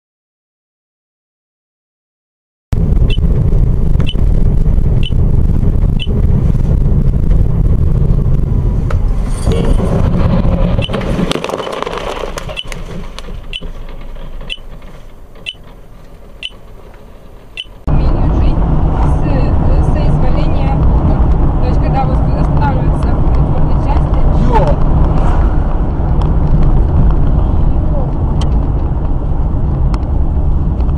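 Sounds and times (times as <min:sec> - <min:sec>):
sharp ticking: 0:02.8 - 0:08.5, 0:10.8 - 0:17.9
car rumble heard from inside: 0:02.8 - 0:30.9.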